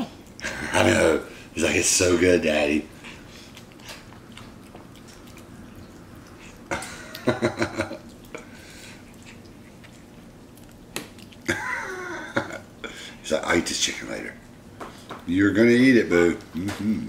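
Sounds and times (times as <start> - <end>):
monkey licking and eating: 2.9 - 12.8
wet mouth sounds: 3.0 - 12.2.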